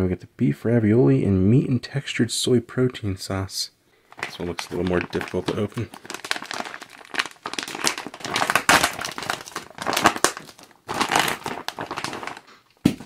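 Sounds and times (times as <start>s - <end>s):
plastic meal bag crinkling: 4.1s - 13.0s.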